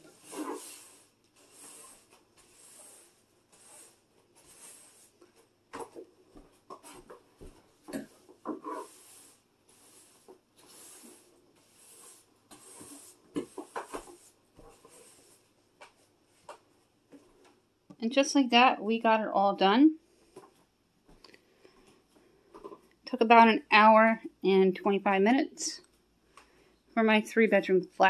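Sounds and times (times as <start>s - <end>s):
broom sweeping hard floor: 0.0s - 16.5s.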